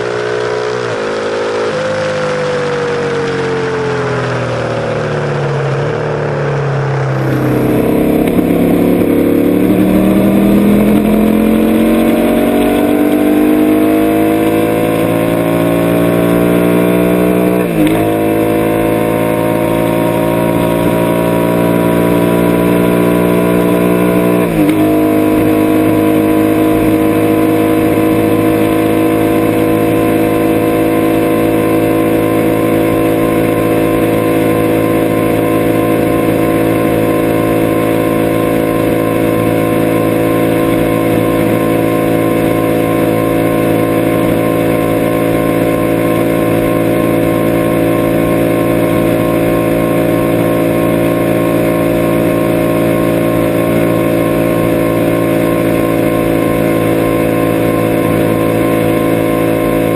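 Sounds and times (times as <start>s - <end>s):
motorcycle engine at highway speed: 0.0s - 59.9s.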